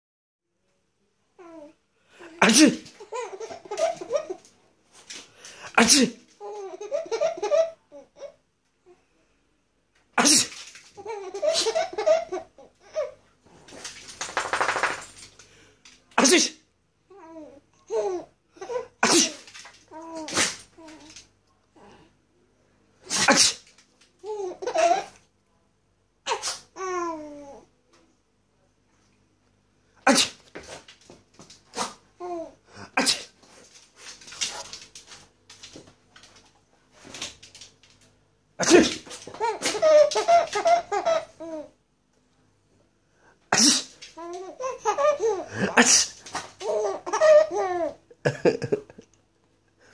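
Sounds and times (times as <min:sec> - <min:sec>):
baby laughing: 0:02.4 - 0:04.5, 0:06.0 - 0:08.4, 0:10.2 - 0:13.2, 0:17.1 - 0:21.2, 0:24.2 - 0:25.2, 0:38.6 - 0:41.8, 0:43.6 - 0:49.0.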